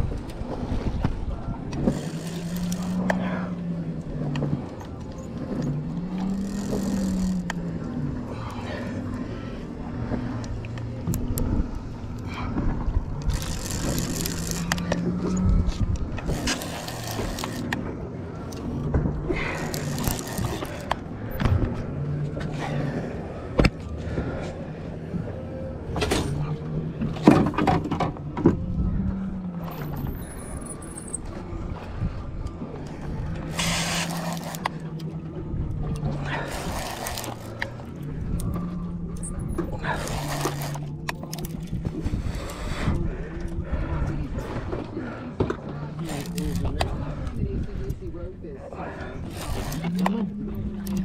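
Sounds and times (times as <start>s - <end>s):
boat engine idling: 0.0s - 51.0s
low steady hum: 0.0s - 51.0s
fishing reel clicks and scrapes: 1.8s - 3.2s, 5.5s - 7.8s, 13.2s - 15.5s, 16.2s - 17.8s, 19.4s - 21.0s, 33.4s - 35.1s, 36.2s - 38.6s, 39.2s - 42.7s, 45.9s - 46.9s, 49.2s - 51.0s
rustling scrape: 33.5s - 34.7s.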